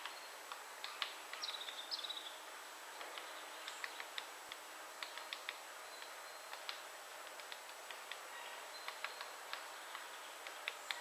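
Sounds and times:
woodpecker tapping on wood: 0:03.0 - 0:05.6, 0:06.5 - 0:08.2, 0:08.8 - 0:11.0.

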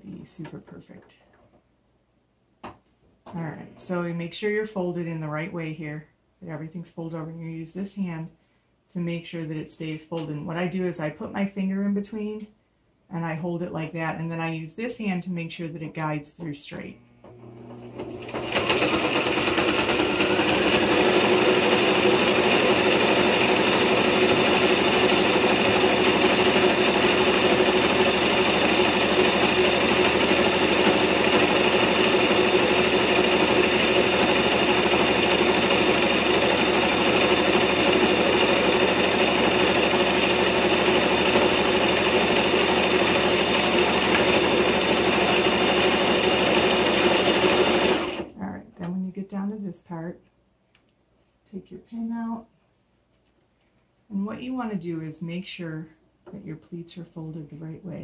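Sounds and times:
sewing machine running: 0:17.3 - 0:48.4.

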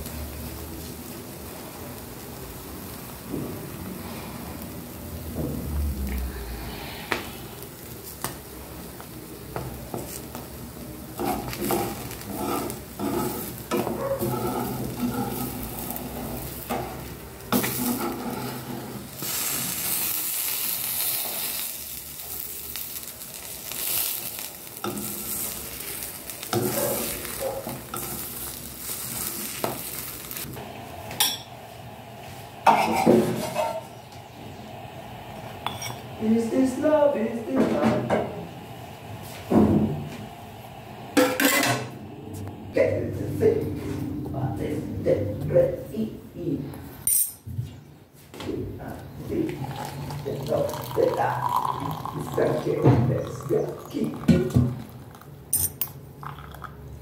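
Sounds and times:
egg sizzling in frying pan: 0:00.0 - 0:06.1, 0:07.1 - 0:42.8
metal spoon scraping pan: 0:11.2 - 0:17.0, 0:17.6 - 0:19.1, 0:32.7 - 0:34.0, 0:35.6 - 0:36.1.

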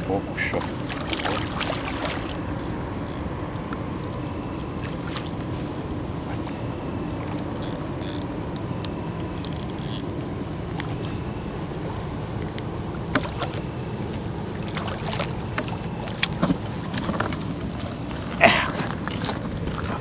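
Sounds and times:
fish splashing in water: 0:00.0 - 0:03.0, 0:04.7 - 0:05.7, 0:13.0 - 0:20.0.

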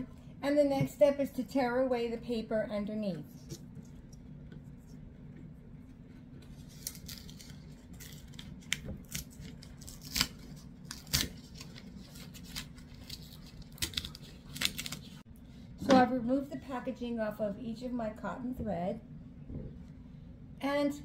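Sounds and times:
paper ripping: 0:06.5 - 0:15.2.

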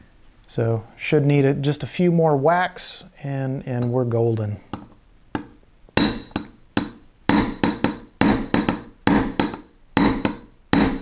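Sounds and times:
hammer tapping steel punch: 0:04.7 - 0:11.0.

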